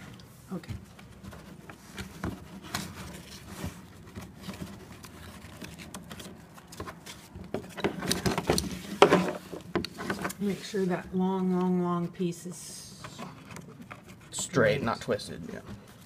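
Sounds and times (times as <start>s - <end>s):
nylon webbing rustling and scraping: 0.0s - 11.0s.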